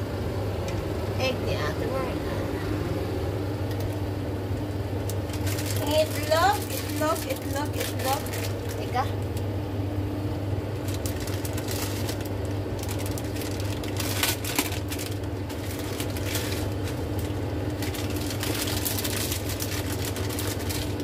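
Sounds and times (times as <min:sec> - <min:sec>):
low hum: 0:00.0 - 0:20.8
plastic packet crinkling: 0:05.1 - 0:09.5, 0:10.8 - 0:21.0.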